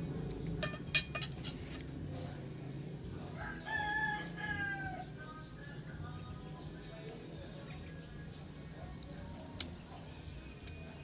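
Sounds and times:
rooster crowing: 0:03.4 - 0:05.1.

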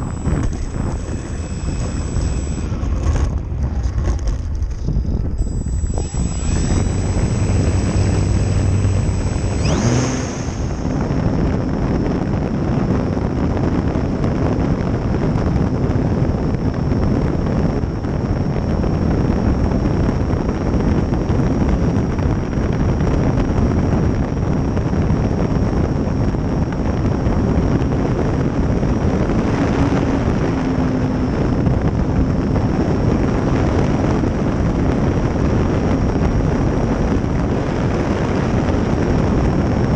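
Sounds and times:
electric motor whine: 0:00.0 - 0:22.2, 0:27.0 - 0:35.0
wind rush on microphone: 0:00.0 - 0:39.9.

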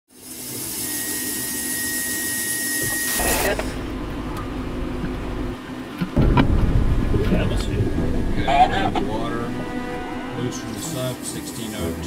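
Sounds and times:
machinery hiss with high whistle: 0:00.1 - 0:03.6
low steady machinery hum: 0:00.3 - 0:12.0.

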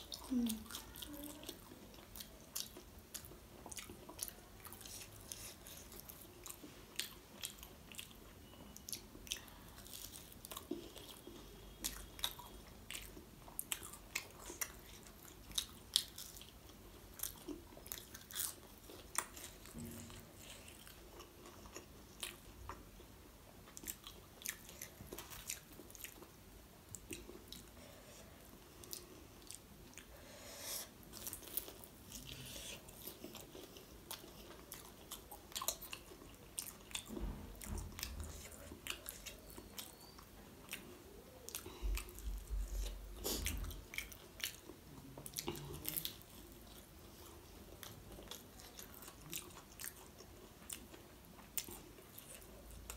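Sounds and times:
crunchy chewing: 0:00.1 - 0:22.9, 0:31.0 - 0:52.9.

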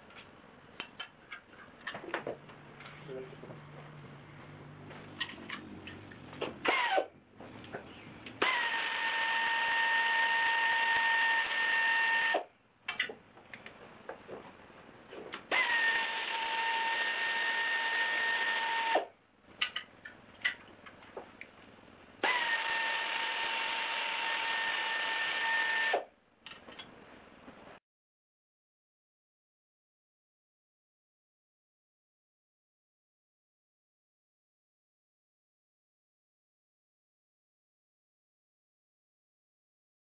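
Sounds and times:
pneumatic air ratchet whine: 0:06.6 - 0:07.1, 0:08.4 - 0:12.5, 0:15.5 - 0:19.1, 0:22.2 - 0:26.1.

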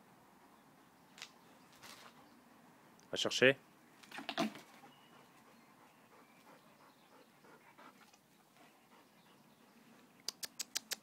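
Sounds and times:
dog panting: 0:04.7 - 0:09.8.

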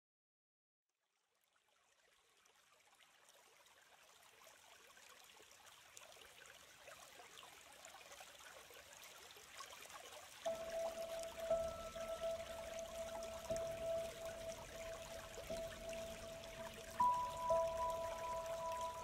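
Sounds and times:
stream rushing over rocks: 0:09.7 - 0:19.0.

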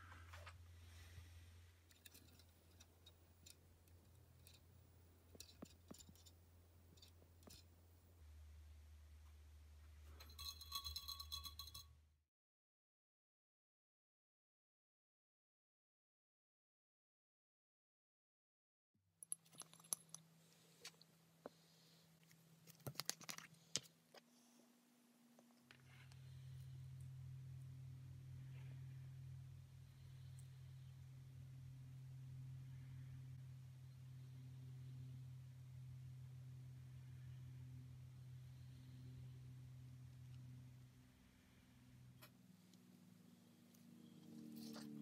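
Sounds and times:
steady low hum: 0:00.0 - 0:12.1, 0:23.5 - 0:45.0.

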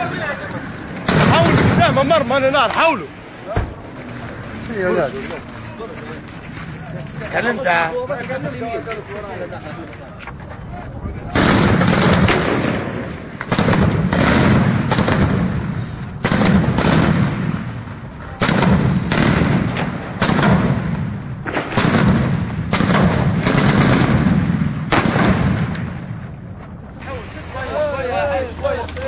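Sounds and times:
loud gunshots echoing: 0:01.0 - 0:02.4, 0:11.3 - 0:26.3.

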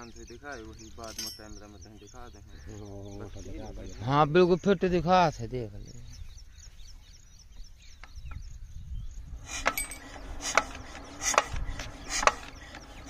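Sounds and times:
diesel engine hand-cranked: 0:09.5 - 0:13.0
sharp mechanical knock: 0:09.6 - 0:12.6.

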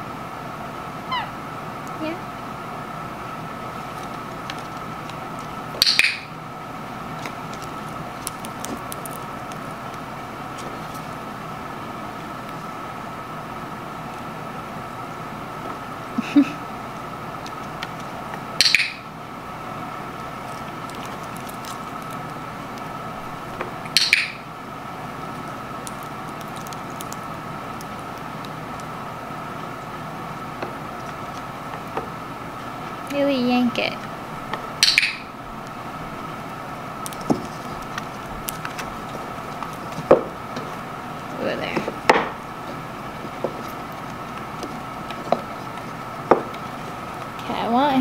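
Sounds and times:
faint steady hum: 0:00.0 - 0:48.0
sharp ringing clicks: 0:34.8 - 0:35.3.

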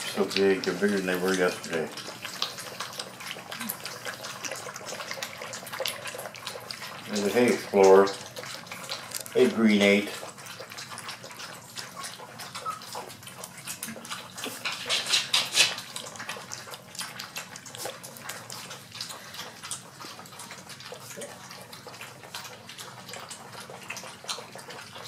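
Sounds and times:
puppies lapping and slurping: 0:00.0 - 0:25.0.

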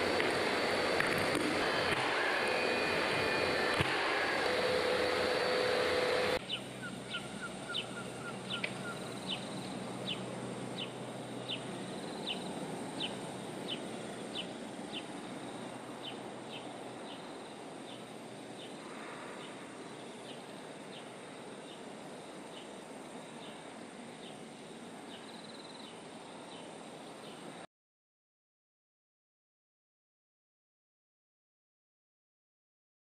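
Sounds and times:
power tool whine: 0:00.0 - 0:21.2
bird chirping: 0:06.4 - 0:15.3, 0:16.0 - 0:18.8.

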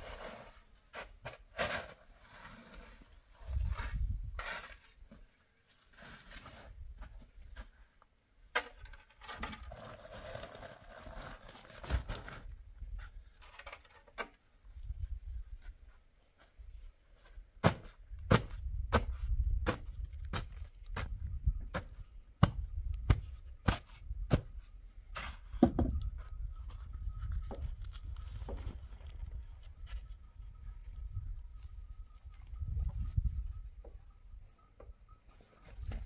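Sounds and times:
shovel scraping into sand: 0:00.0 - 0:05.1, 0:05.9 - 0:06.8.

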